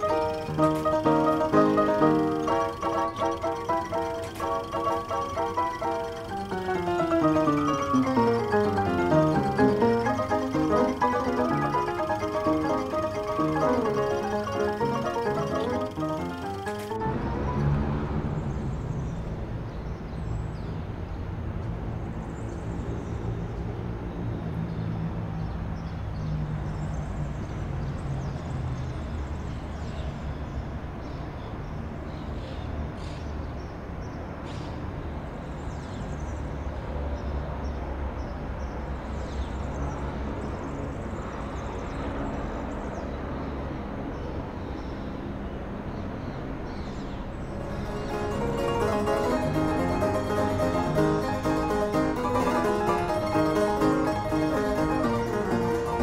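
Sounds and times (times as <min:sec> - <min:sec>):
small birds chirping: 0:00.0 - 0:17.6
distant traffic rumble: 0:00.0 - 0:29.8, 0:33.7 - 0:56.0.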